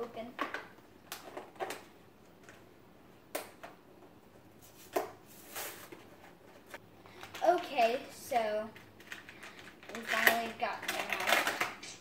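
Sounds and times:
plastic packaging clicks and crinkles: 8.7 - 11.9.

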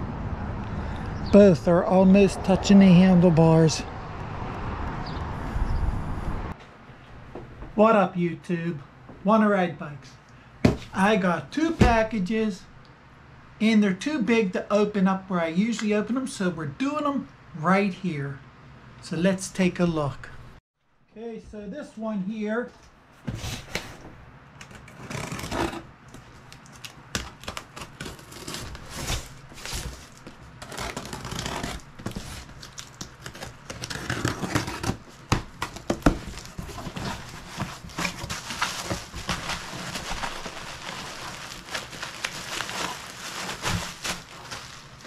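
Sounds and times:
bubble wrap crinkling: 26.2 - 45.0.

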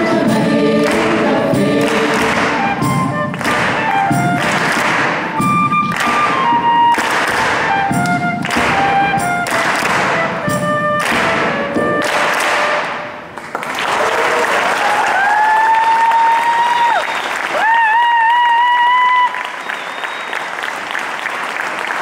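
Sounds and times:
live band playing: 0.0 - 13.4
children clapping in time: 0.8 - 22.0
audience applause: 13.4 - 22.0.

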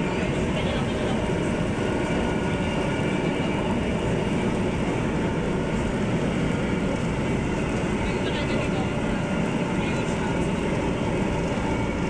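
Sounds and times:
light rail train rumbling: 0.0 - 12.0.

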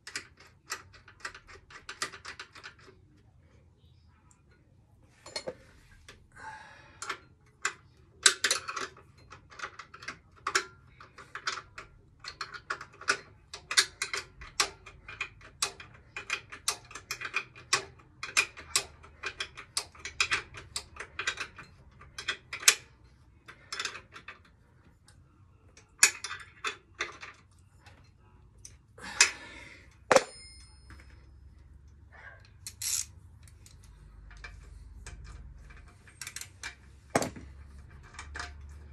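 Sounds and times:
ringing metallic clank: 30.1 - 31.2
metal tools clinking: 30.1 - 31.4.

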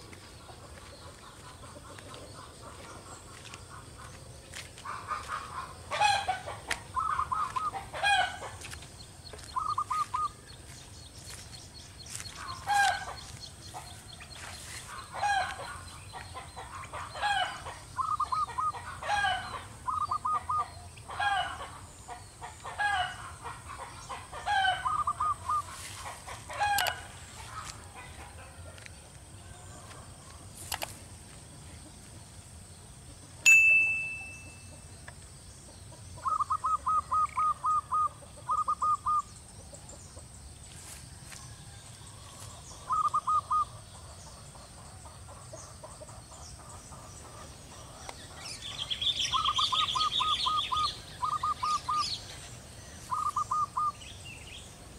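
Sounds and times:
doves cooing: 0.0 - 10.7, 12.1 - 28.8, 36.2 - 39.3, 42.4 - 43.8, 47.2 - 54.0
bright ding: 33.5 - 34.8.

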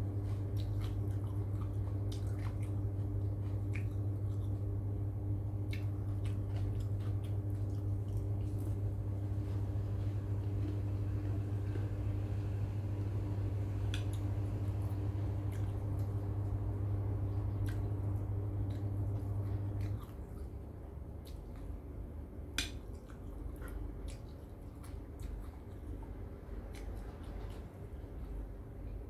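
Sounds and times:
low hum: 0.0 - 29.0
chewing: 0.1 - 12.5, 13.8 - 21.8, 22.6 - 29.0.

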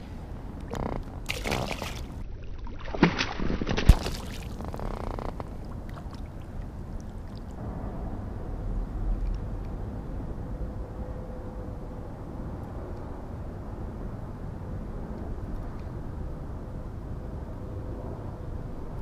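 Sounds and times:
fish splashing into water: 1.3 - 4.6.

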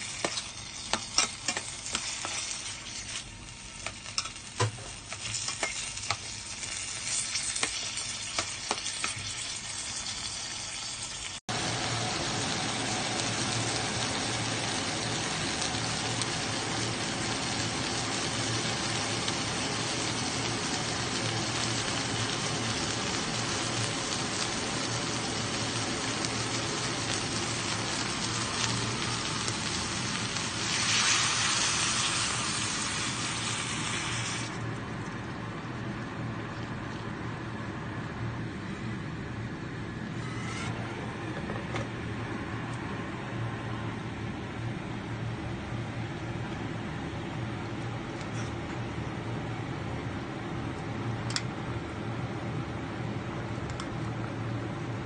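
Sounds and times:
fish sizzling in a pot: 0.0 - 34.6
tomatoes sizzling in oil: 0.0 - 34.8.

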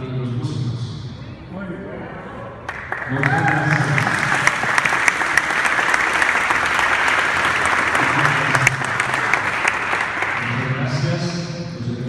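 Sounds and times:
crowd applauding: 2.6 - 11.0.

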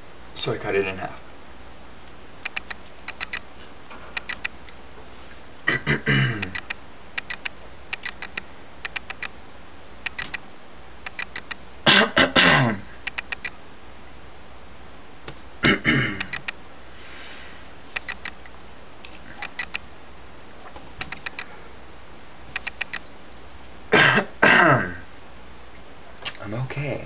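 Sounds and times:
soft quick clicks: 2.4 - 3.5
man coughing: 5.7 - 6.6, 11.9 - 12.9, 15.6 - 16.3, 23.9 - 25.0.

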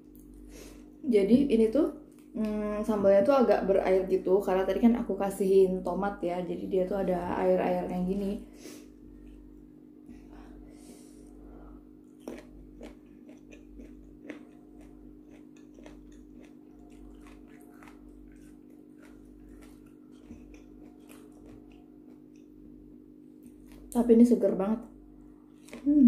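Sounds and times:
steady low hum: 0.0 - 26.0
crisp chewing crunches: 12.0 - 22.5, 23.4 - 24.0, 25.5 - 26.0.

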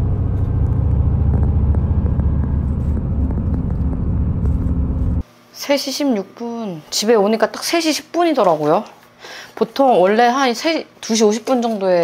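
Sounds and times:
bus engine: 0.0 - 5.2
road rumble: 0.0 - 5.2.

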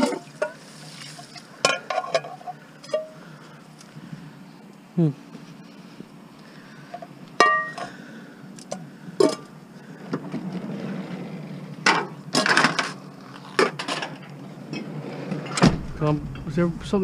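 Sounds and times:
steady low hum: 0.4 - 17.0
metal pots clanging and clattering: 1.6 - 3.2.

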